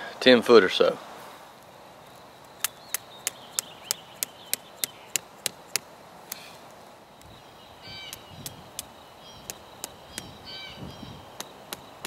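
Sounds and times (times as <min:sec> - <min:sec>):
hammer tapping plastic stake: 0:02.6 - 0:06.5, 0:08.1 - 0:10.4, 0:11.4 - 0:12.0.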